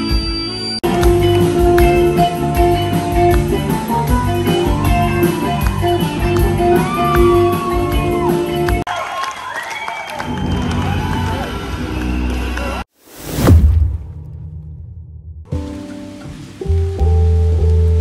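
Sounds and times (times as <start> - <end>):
electric guitar: 0.0 - 8.8
drums keeping a steady beat: 0.8 - 8.9.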